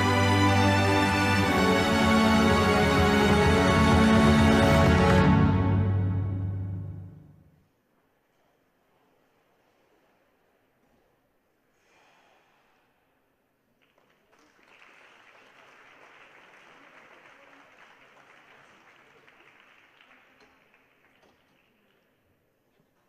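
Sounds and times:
faint crowd applause: 0.0 - 6.1, 13.7 - 22.3.

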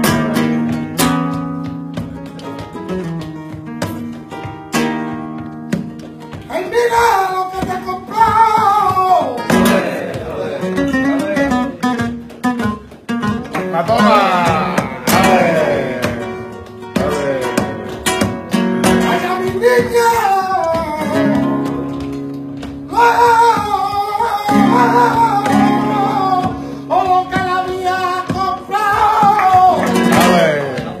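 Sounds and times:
flamenco guitar strummed and picked: 0.0 - 31.0.

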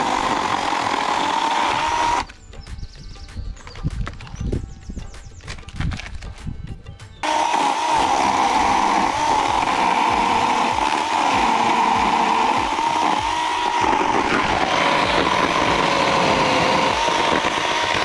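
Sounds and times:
electric chainsaw whining: 0.0 - 2.4, 7.2 - 18.0.

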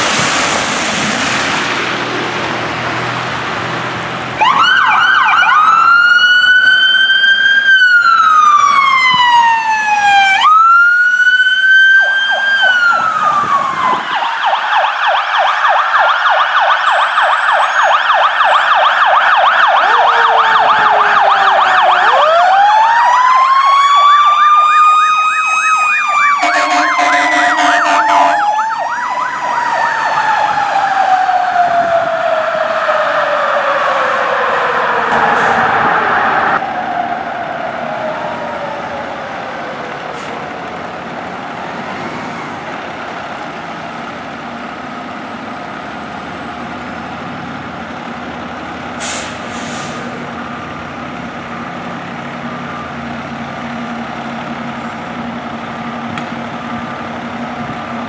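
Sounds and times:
fire engine siren wailing and yelping: 0.0 - 58.0
second siren winding up: 4.4 - 33.4
fire engine horn blasts: 26.2 - 28.7.

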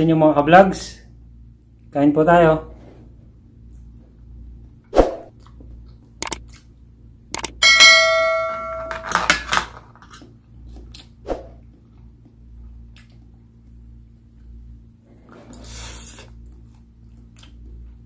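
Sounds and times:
quick clicks: 6.2 - 6.4, 7.3 - 7.6
bell-like ding: 7.6 - 9.1.

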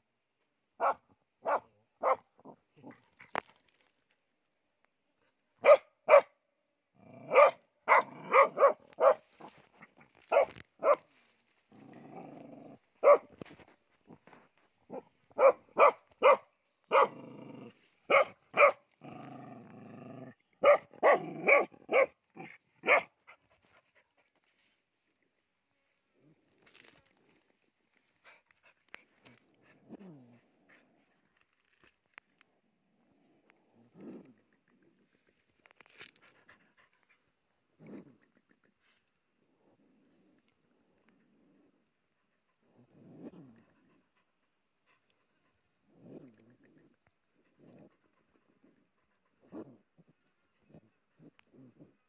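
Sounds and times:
small dog barking: 0.8 - 2.2, 5.6 - 6.3, 7.3 - 9.5, 10.3 - 11.1, 13.0 - 13.3, 14.9 - 17.2, 18.1 - 18.8, 20.6 - 22.2, 22.8 - 23.2
dog growling: 11.7 - 12.9, 16.9 - 17.8, 19.0 - 21.7, 29.3 - 31.2, 45.9 - 48.8.

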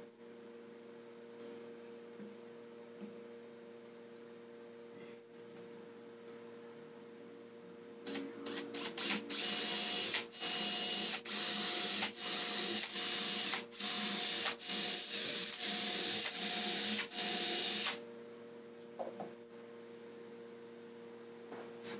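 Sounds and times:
cordless drill whine: 8.1 - 18.0.

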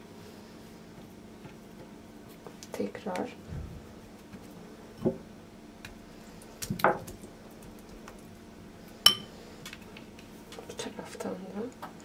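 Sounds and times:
dough patted and squished: 0.9 - 8.5.

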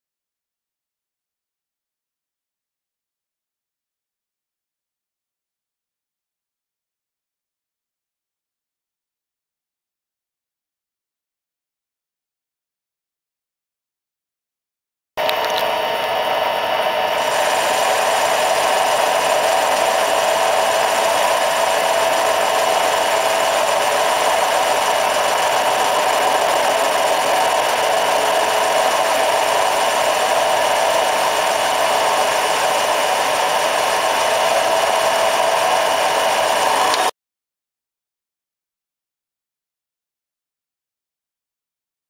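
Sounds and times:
lathe motor whirring: 15.2 - 37.1.

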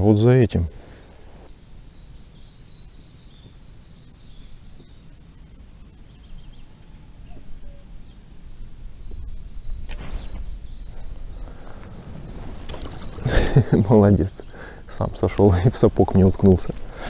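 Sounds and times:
small birds chirping: 0.0 - 17.0
wind rumbling on microphone: 1.1 - 14.7.

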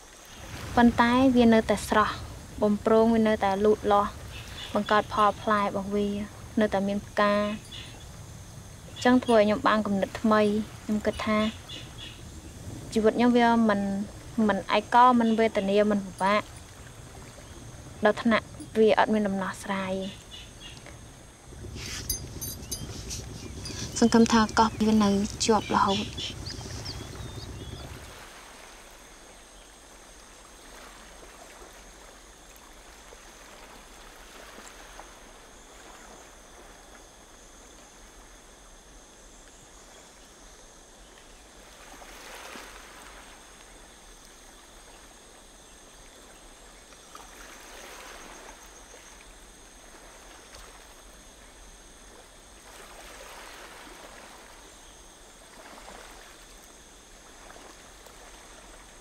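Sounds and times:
faint high whine: 0.0 - 29.8
water lapping and trickling: 0.0 - 59.0.

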